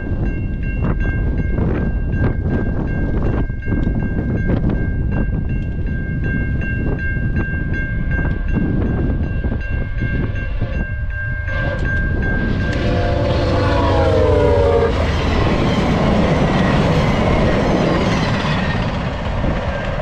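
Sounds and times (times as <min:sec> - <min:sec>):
low rumble: 0:06.7 - 0:20.0.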